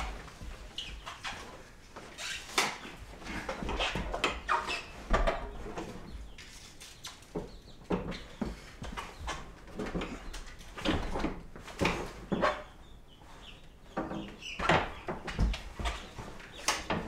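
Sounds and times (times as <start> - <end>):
door rollers knocking and squeaking: 3.2 - 6.4, 7.5 - 12.9, 13.9 - 17.0.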